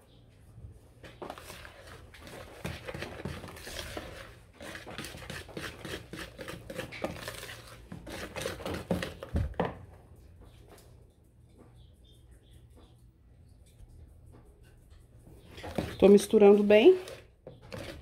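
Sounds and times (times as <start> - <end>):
whisk beating batter in bowl: 1.0 - 9.3, 15.4 - 18.0.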